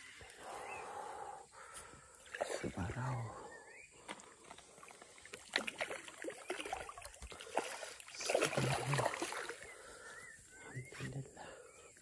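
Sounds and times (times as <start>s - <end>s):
fish splashing at water surface: 4.9s - 9.7s.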